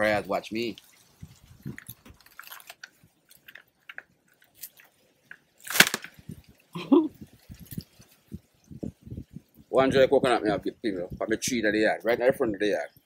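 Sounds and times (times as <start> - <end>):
dry fronds crackling: 0.0 - 9.6
coconut stalk snapping: 5.6 - 6.2.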